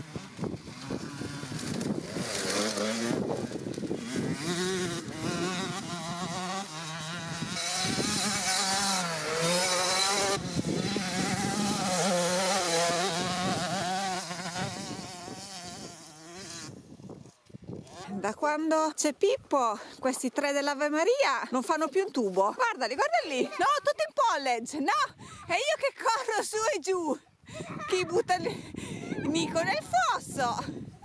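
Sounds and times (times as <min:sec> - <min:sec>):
motorcycle engine revving: 0:00.0 - 0:18.2.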